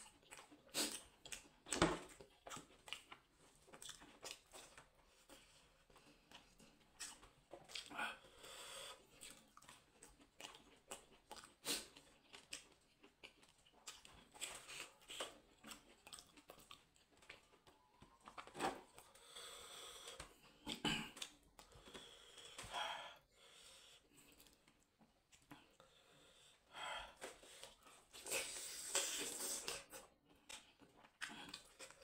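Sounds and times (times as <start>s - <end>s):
soft chewing: 0.0s - 32.0s
breathing: 8.0s - 9.2s, 19.0s - 20.6s, 21.6s - 24.5s, 25.6s - 28.8s.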